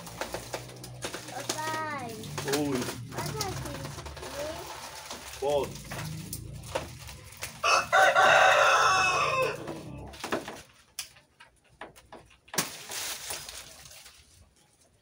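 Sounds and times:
rustle of leaves: 0.0s - 10.2s, 12.6s - 15.0s
rooster crowing: 7.5s - 10.1s.

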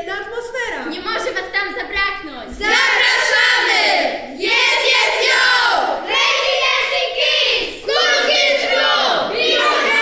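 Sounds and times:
children chanting in unison: 2.6s - 10.0s.

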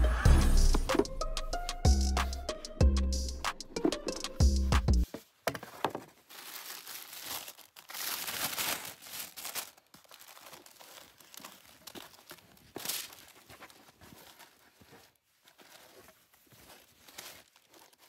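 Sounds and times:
fabric bag rustling: 5.6s - 18.0s
tissue paper rustling and crinkling: 5.6s - 18.0s.

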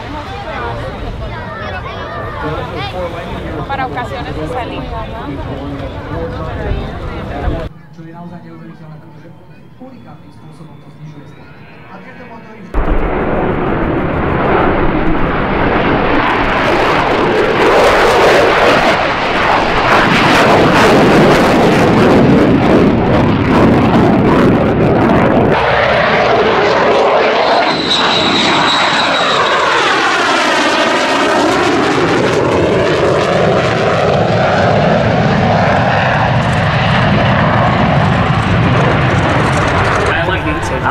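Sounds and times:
jet passing by: 0.0s - 40.9s
jet engine afterburner crackling: 12.6s - 40.9s.

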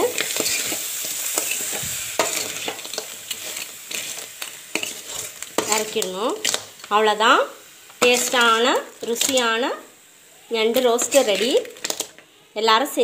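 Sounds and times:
frying sizzle: 0.0s - 13.0s
utensil scraping metal pan: 0.1s - 6.6s, 10.9s - 11.7s.

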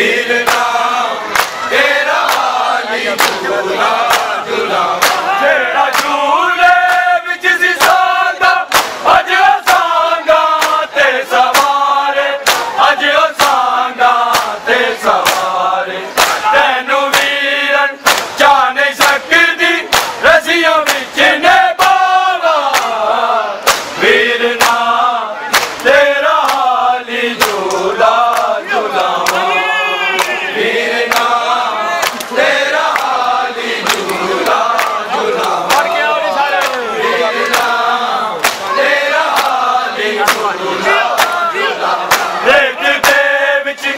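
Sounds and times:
men chanting together: 0.0s - 43.9s
hand-slaps on bare chests: 0.4s - 4.4s, 5.0s - 6.2s, 6.8s - 7.1s, 7.8s - 16.5s, 17.1s - 17.4s, 18.0s - 20.2s, 20.8s - 21.2s, 21.8s - 23.0s, 23.6s - 24.0s, 24.6s - 24.9s, 25.5s - 29.5s, 31.1s - 31.4s, 32.0s - 37.8s, 38.4s - 42.4s, 43.0s - 43.3s.

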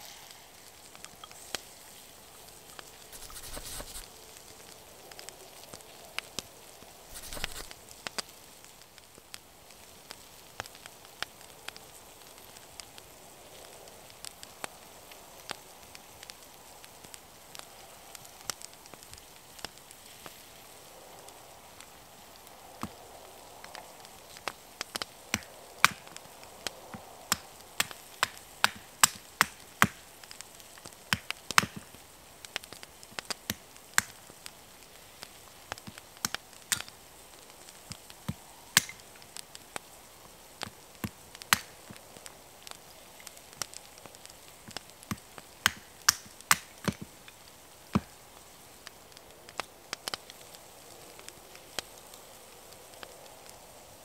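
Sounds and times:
faint steady hiss: 0.0s - 54.0s
sharp wooden cracks and snaps: 23.7s - 34.6s, 35.2s - 37.0s, 37.8s - 39.4s, 40.6s - 48.2s.

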